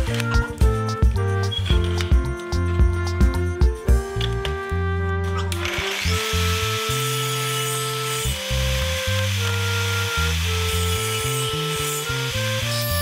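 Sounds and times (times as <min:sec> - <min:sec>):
background music with bass line: 0:00.0 - 0:13.0
table saw cutting wood: 0:05.3 - 0:13.0.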